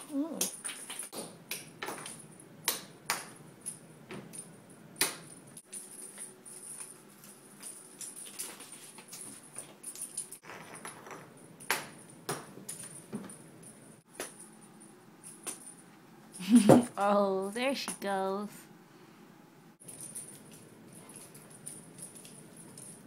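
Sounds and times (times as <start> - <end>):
rattling jingle: 3.4 - 18.1, 19.8 - 23.0.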